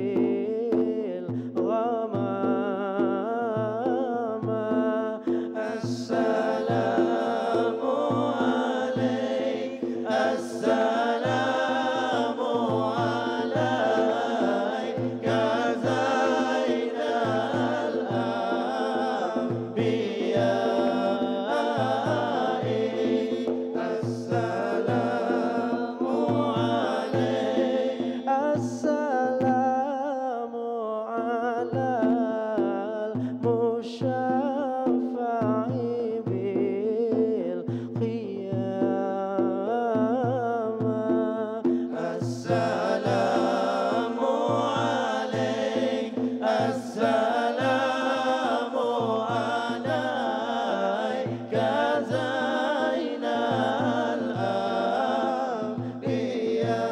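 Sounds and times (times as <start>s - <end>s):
man chanting into a microphone: 23.8s - 56.9s.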